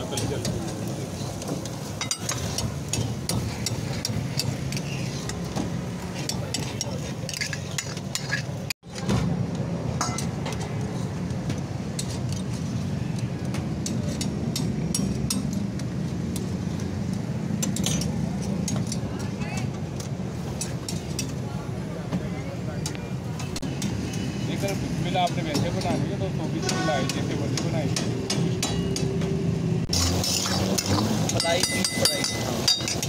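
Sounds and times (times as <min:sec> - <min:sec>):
metal utensils clinking against pans: 0:00.0 - 0:08.8, 0:10.0 - 0:11.1, 0:17.5 - 0:19.7, 0:30.0 - 0:33.0.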